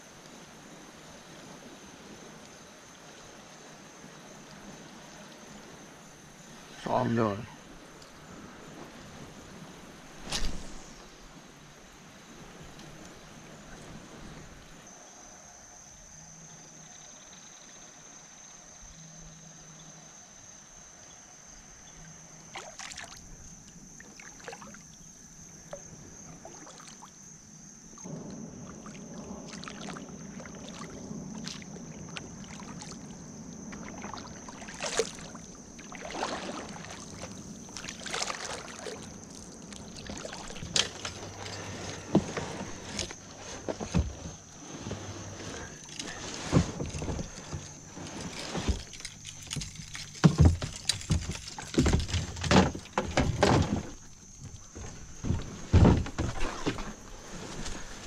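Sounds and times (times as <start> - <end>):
paddle strokes and splashing water: 0.0 - 14.9, 22.4 - 27.3, 27.9 - 58.0
paddle knocking against hull: 48.5 - 57.1.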